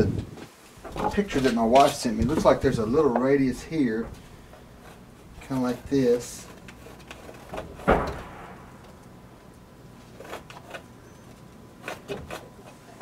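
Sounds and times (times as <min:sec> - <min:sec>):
pencil scratching: 0:11.8 - 0:12.5.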